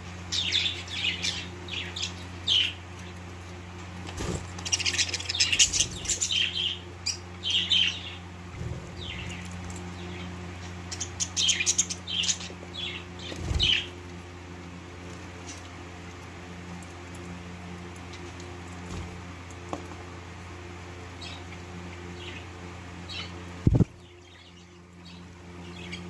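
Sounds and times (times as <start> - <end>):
steady low hum: 0.0 - 26.0
budgerigars chirping: 4.7 - 8.2.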